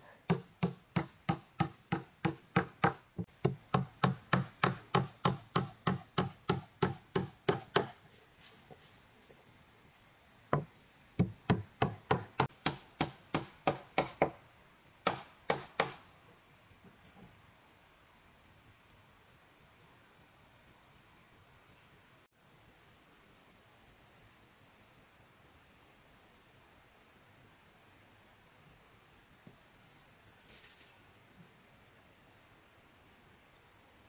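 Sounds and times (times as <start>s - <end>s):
blade chopping wood: 0.3s - 8.0s, 10.6s - 14.3s, 15.1s - 16.0s.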